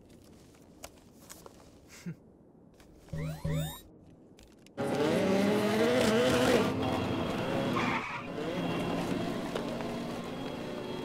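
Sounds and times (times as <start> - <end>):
rc car tyre screech: 7.7 - 8.8.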